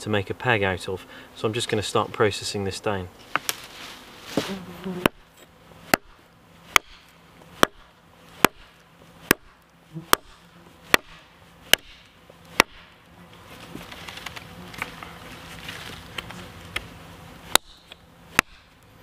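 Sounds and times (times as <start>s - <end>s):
hatchet chopping wood: 4.9s - 12.9s, 17.5s - 18.7s.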